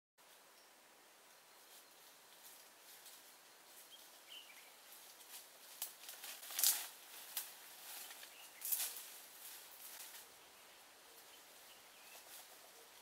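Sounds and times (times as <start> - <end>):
sticks and leaves snapping: 5.7 - 9.1.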